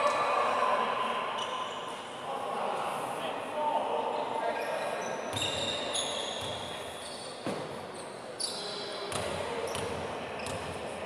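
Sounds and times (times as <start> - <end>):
sneaker squeaks: 1.4 - 2.0, 4.6 - 10.8.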